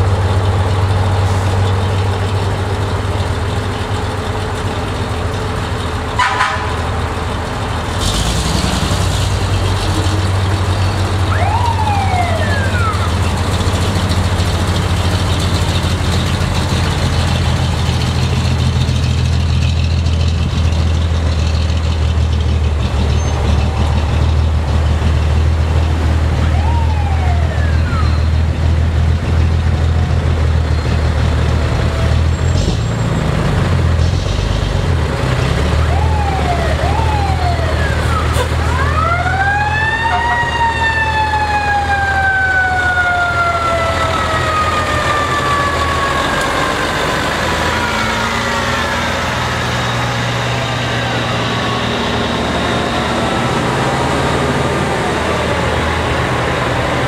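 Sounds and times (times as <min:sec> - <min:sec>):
diesel trucks rolling past: 0:00.0 - 0:57.0
fire truck siren: 0:00.9 - 0:08.2, 0:08.8 - 0:18.4, 0:23.1 - 0:32.5, 0:35.4 - 0:57.0.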